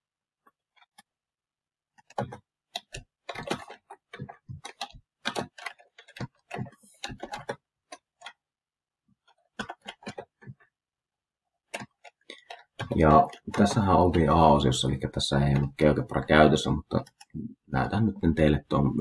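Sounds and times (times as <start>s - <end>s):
computer keyboard clicks: 2.0s - 8.4s, 9.5s - 10.6s, 11.7s - 14.0s.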